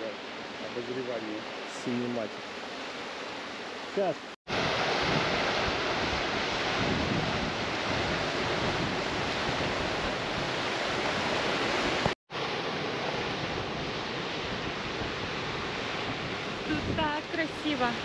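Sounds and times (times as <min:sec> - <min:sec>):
wind buffeting microphone: 0:04.5 - 0:18.0
river water rushing over rocks: 0:09.3 - 0:13.2.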